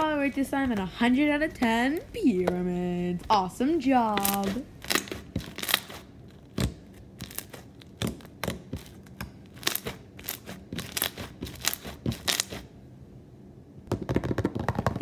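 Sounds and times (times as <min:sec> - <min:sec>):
slime crunching and popping: 0:04.2 - 0:12.7.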